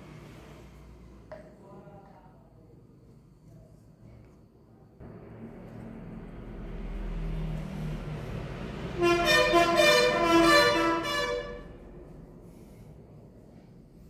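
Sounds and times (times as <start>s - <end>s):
vehicle noise: 5.0s - 14.0s
vehicle horn honking: 8.9s - 11.8s.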